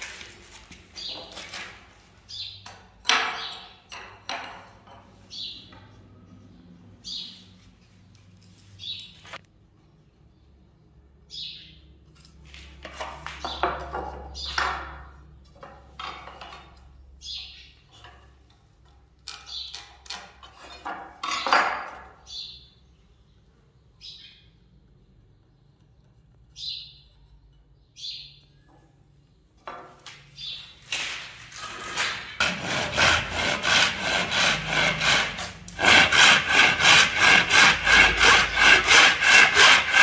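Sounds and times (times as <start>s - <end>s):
wood scraping and knocking: 0.0s - 2.0s, 12.5s - 16.7s, 30.9s - 40.0s.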